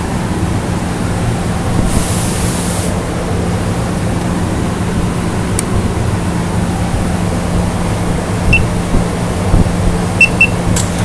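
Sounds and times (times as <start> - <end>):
short high hiss: 1.8 - 3.0.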